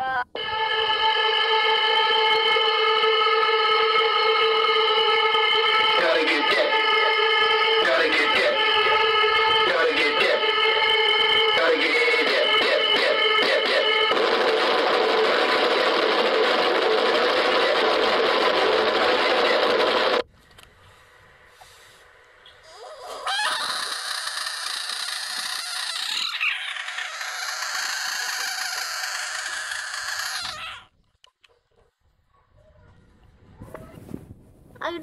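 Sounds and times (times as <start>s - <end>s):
loud static hiss: 13.5s - 22.4s
frog screaming: 22.6s - 30.9s.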